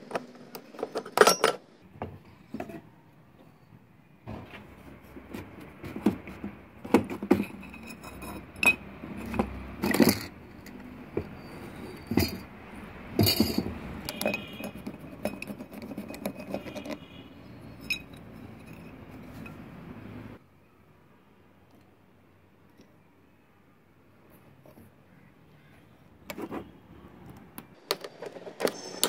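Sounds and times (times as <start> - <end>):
metal parts clinking and scraping: 0.1 - 1.7, 7.1 - 19.8, 27.8 - 29.0.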